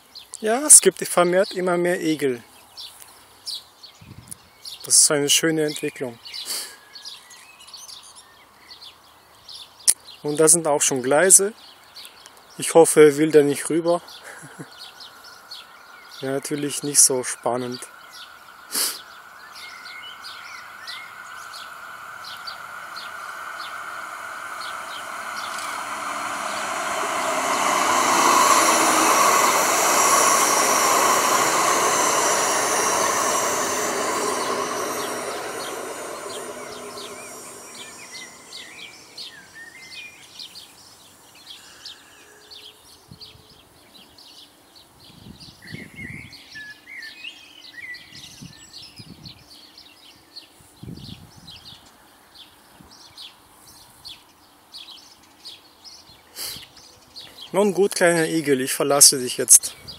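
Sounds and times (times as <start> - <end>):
small birds chirping: 13.9 - 43.2
tram wheel and rail noise: 16.1 - 40.3.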